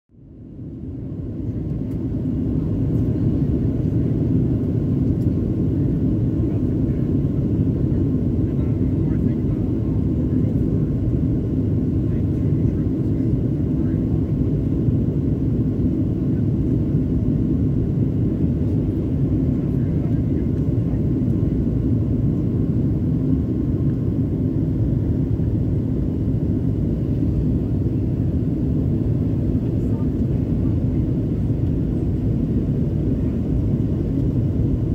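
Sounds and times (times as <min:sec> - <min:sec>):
aircraft cabin rumble: 0:00.4 - 0:34.9.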